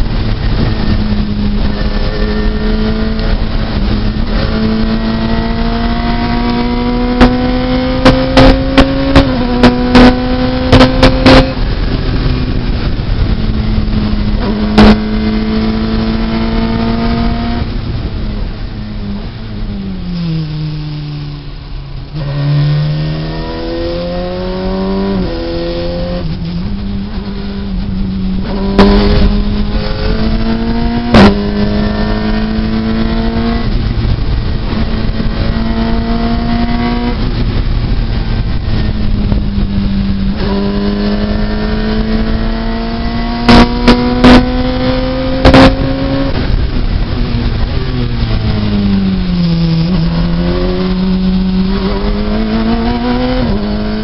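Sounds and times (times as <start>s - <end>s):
car engine accelerating hard: 0.0s - 19.4s, 20.2s - 54.0s.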